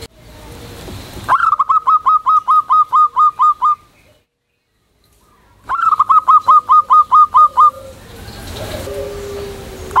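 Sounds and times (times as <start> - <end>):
dove cooing: 1.3 - 3.8, 5.7 - 10.0.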